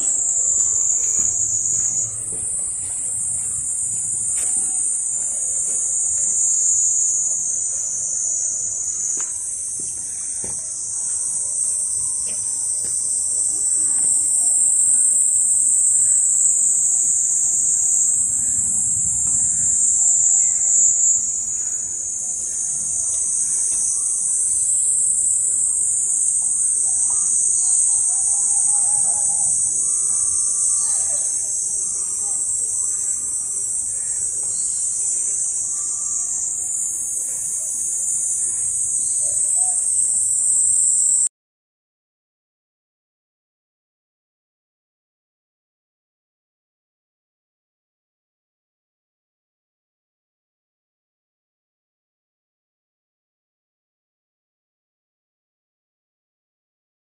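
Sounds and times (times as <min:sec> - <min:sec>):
insects chorus: 0:00.0 - 0:41.3.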